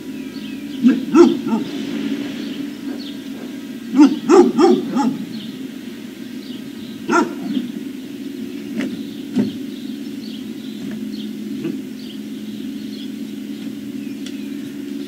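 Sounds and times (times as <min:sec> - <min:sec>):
low hum: 0:00.0 - 0:15.0
dogs barking: 0:00.8 - 0:01.8, 0:02.8 - 0:06.0, 0:06.6 - 0:08.0, 0:11.6 - 0:12.0.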